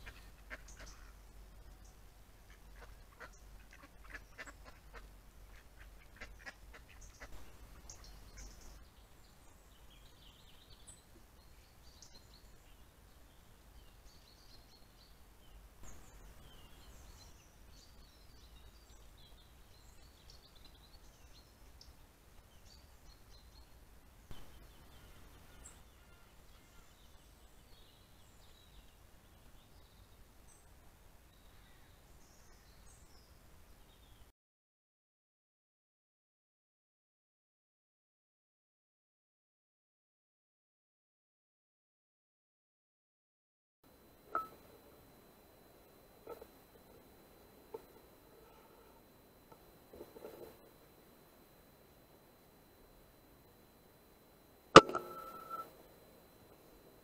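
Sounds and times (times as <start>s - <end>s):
ducks quacking softly: 0.0s - 1.3s, 2.4s - 8.6s
faint bird chirps: 0.0s - 34.3s, 43.9s - 57.0s
low hum: 43.9s - 57.0s.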